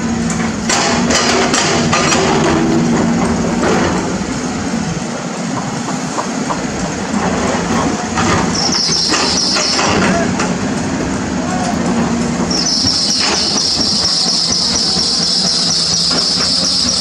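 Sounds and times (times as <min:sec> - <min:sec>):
excavator diesel engine: 0:00.0 - 0:17.0
high squeal: 0:08.5 - 0:10.3, 0:12.4 - 0:17.0.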